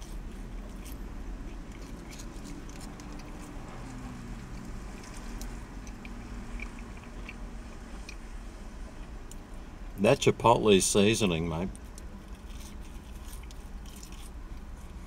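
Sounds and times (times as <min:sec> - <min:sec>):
man chewing chips: 0:00.0 - 0:08.3, 0:11.7 - 0:15.0
low vehicle rumble: 0:00.0 - 0:15.0.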